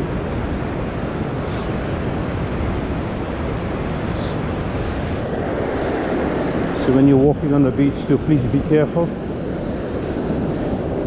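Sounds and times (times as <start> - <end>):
surf breaking on beach: 0.0 - 11.0
wind buffeting microphone: 0.0 - 11.0.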